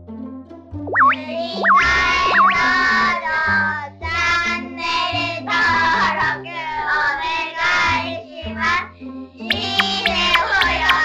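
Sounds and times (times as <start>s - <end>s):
upbeat jingle with sung vocals: 1.1s - 3.7s, 9.5s - 11.0s.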